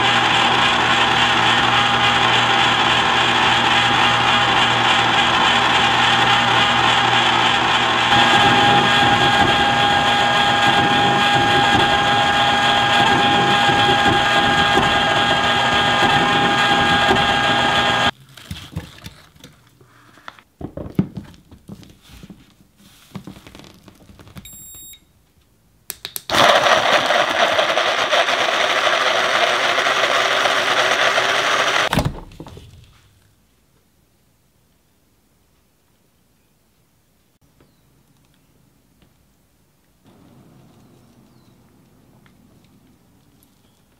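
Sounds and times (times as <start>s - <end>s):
electric food chopper whirring: 0.0s - 18.1s, 26.3s - 31.9s
ice cream maker motor humming: 0.0s - 18.1s, 26.3s - 31.9s.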